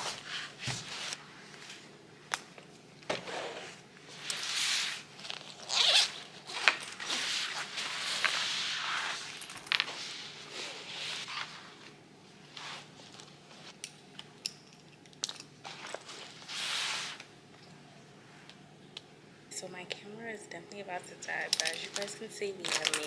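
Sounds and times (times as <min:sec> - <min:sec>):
nylon bag rustling: 0:03.2 - 0:11.6
zipper pulled open: 0:04.8 - 0:09.2.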